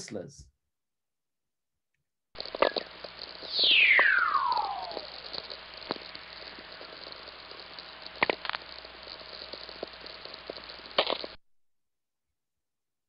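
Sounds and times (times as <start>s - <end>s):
radio static hiss: 2.4s - 11.4s
short radio cracks: 2.4s - 11.4s
falling radio whistling tone: 2.5s - 6.8s.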